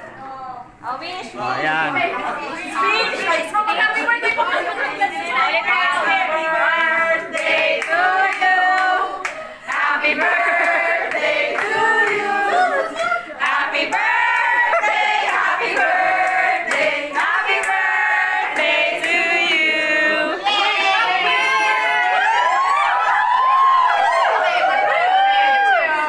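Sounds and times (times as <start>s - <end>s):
group of voices singing: 5.2s - 22.2s.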